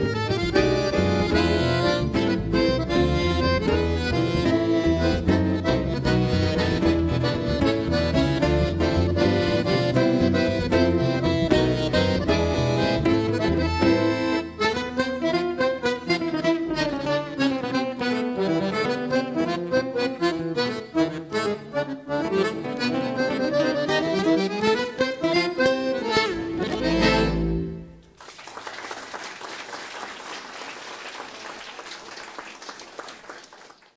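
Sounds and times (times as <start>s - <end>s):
accordion guitar and bass trio: 0.0s - 28.2s
audience applause: 28.2s - 33.9s.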